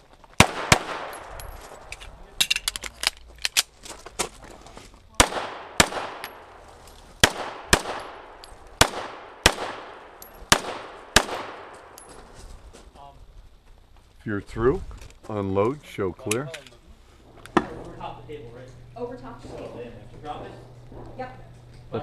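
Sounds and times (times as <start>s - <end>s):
pistol shots with echo: 0.4s - 1.4s, 5.2s - 6.6s, 7.2s - 12.0s.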